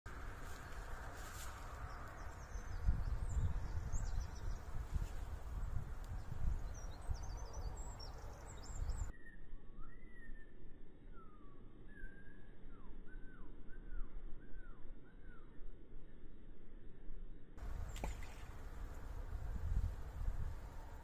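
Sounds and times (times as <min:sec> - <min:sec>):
small birds chirping: 0:00.1 - 0:09.1
wind buffeting microphone: 0:00.1 - 0:09.1, 0:17.6 - 0:21.0.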